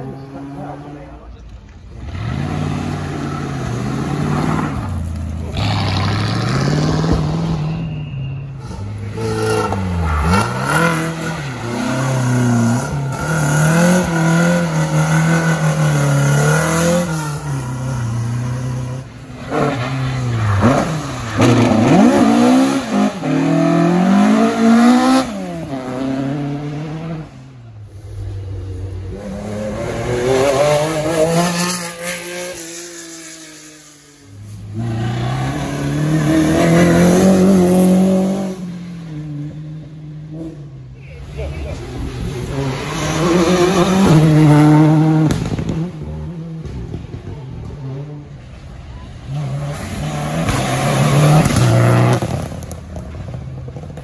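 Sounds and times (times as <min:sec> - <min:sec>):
rally car engines revving: 0:00.0 - 0:54.0.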